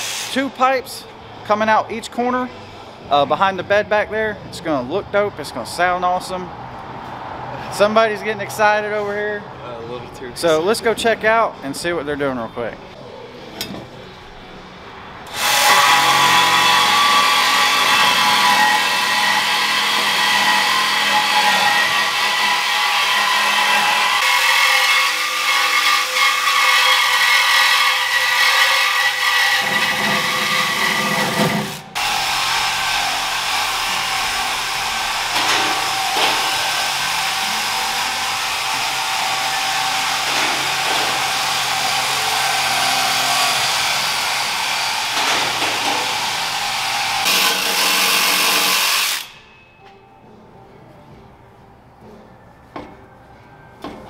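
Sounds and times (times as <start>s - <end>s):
cordless power tool running: 15.3s - 24.4s.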